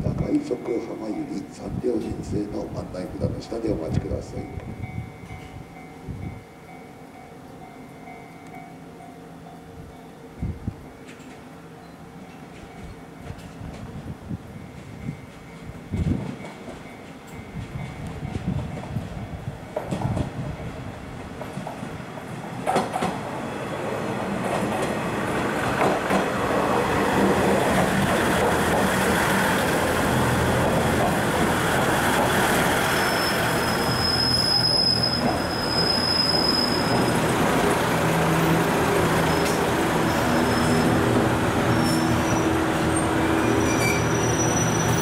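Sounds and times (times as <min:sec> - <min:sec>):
diesel railcar engines running: 0:00.0 - 0:45.0
wheels rumbling over rails: 0:14.7 - 0:45.0
high wheel squeal: 0:32.6 - 0:45.0.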